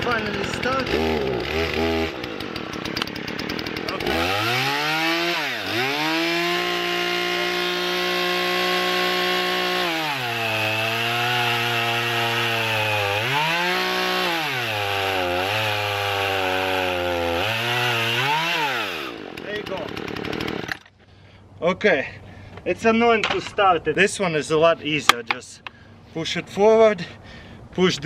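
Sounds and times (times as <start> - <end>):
chainsaw cutting a log: 0.0 - 20.9.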